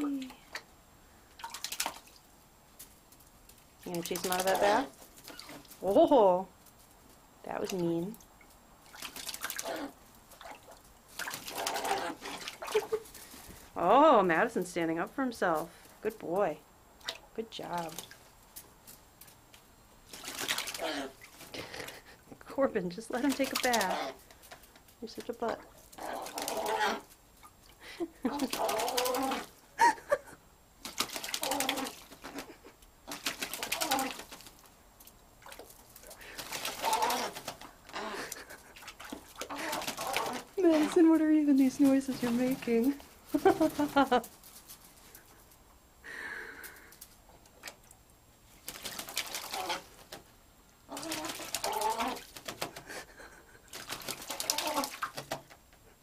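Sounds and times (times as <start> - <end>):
water splashing: 1.3 - 2.3, 3.7 - 6.3, 7.5 - 14.2, 20.0 - 22.2, 23.0 - 29.6, 30.8 - 44.4, 48.5 - 50.2, 50.9 - 55.5
crow rattling calls: 26.0 - 27.1, 28.4 - 29.5, 31.4 - 32.0, 33.1 - 34.3, 36.6 - 38.1, 39.5 - 40.6, 49.2 - 50.0, 50.9 - 52.6, 54.3 - 55.1.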